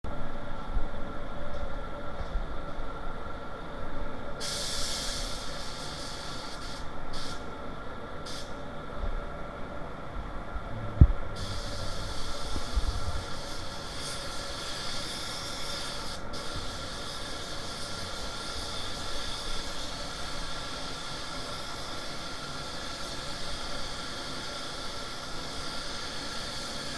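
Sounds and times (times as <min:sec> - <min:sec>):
steady hum: 0:00.1 - 0:26.9
spray gun hissing: 0:04.4 - 0:07.5, 0:11.3 - 0:26.9.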